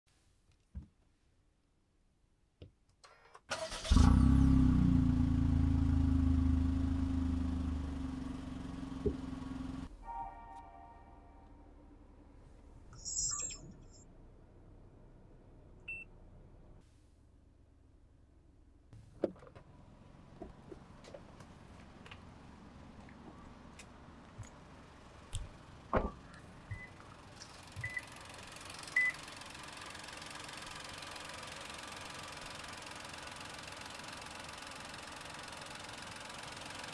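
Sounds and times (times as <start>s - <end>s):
car engine starting and idling: 3.5s - 10.1s, 17.4s - 36.9s.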